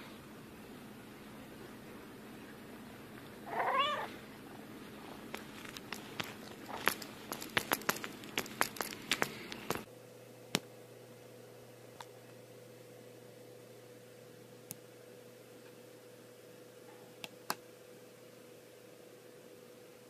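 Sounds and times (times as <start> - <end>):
cat meowing: 3.4 - 4.2.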